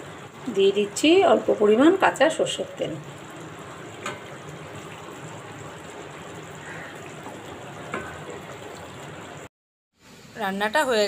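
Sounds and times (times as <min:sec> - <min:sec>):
curry simmering with bubbling hiss: 0:00.0 - 0:10.3.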